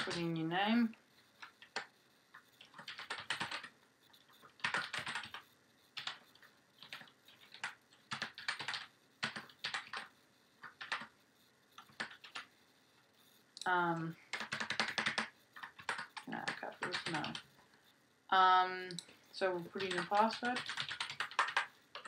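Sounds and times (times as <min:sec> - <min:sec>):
typing on computer keyboard: 0:00.0 - 0:00.4, 0:01.3 - 0:11.2, 0:11.8 - 0:12.5, 0:13.6 - 0:17.6, 0:19.7 - 0:22.0.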